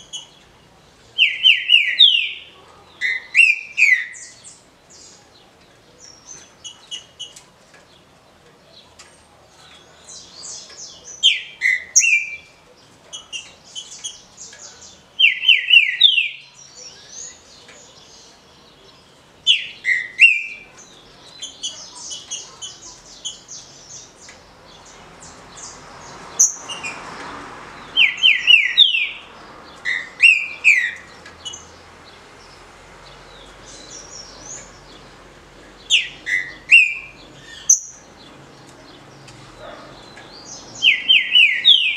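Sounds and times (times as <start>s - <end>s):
bird whistled song phrases: 15.2s - 17.4s.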